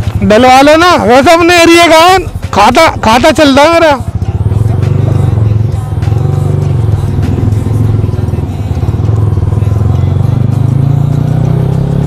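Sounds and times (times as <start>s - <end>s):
motorcycle engine at low revs: 2.5s - 12.0s.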